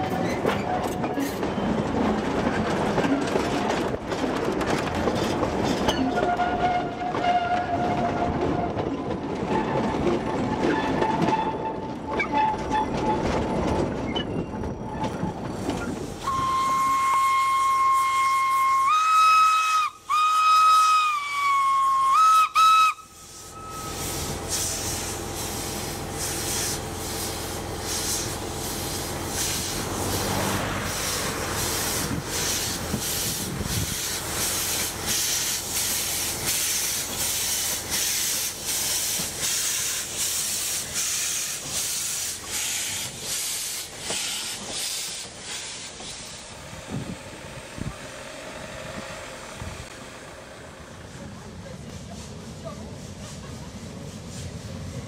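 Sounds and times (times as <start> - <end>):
steam locomotive chuffing: 0.0 - 55.0
steam hissing: 15.9 - 55.0
steam whistle: 16.2 - 24.2.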